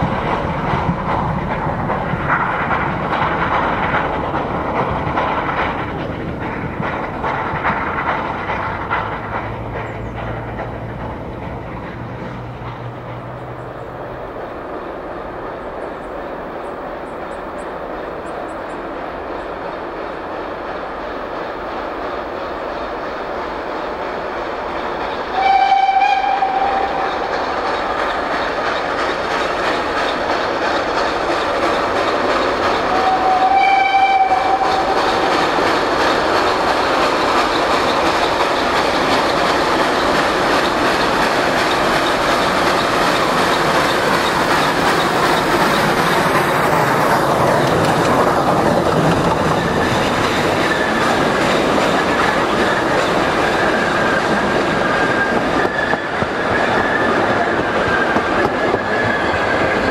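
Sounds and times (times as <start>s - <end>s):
steam locomotive running: 0.0s - 59.9s
steam whistle blasts: 25.3s - 27.2s, 32.9s - 35.0s.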